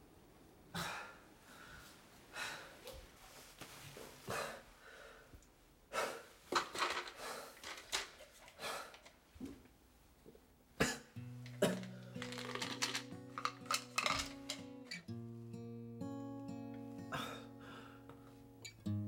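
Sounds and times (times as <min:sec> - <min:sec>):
soft acoustic guitar music: 0:11.1 - 0:19.0.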